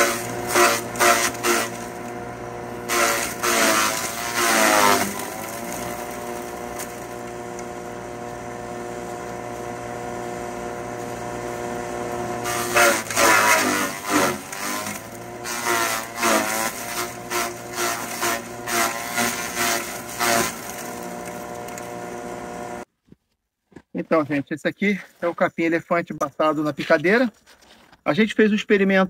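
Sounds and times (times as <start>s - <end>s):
forage chopper motor hum: 0.0s - 22.9s
grass shredding: 0.0s - 22.9s.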